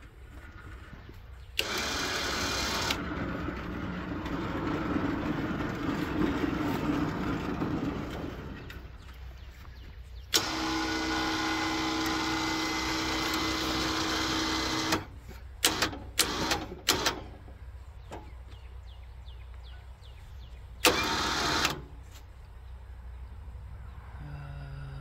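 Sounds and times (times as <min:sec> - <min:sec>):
motor switch clunk: 0:01.5 - 0:03.1, 0:10.3 - 0:18.4, 0:20.8 - 0:22.0
band saw electric motor running: 0:01.6 - 0:08.1, 0:10.4 - 0:15.1.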